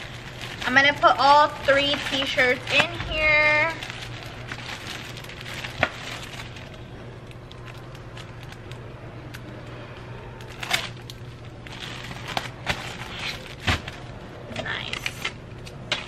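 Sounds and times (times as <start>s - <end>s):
plastic bag rustling: 0.0s - 16.0s
steady low hum: 0.0s - 16.0s.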